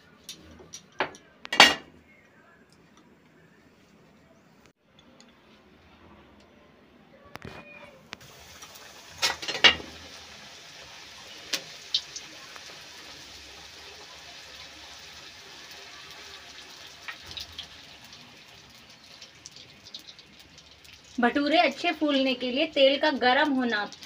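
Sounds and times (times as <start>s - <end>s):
bread sizzling in hot oil: 8.2s - 24.0s
metal pan clattering: 9.2s - 10.0s.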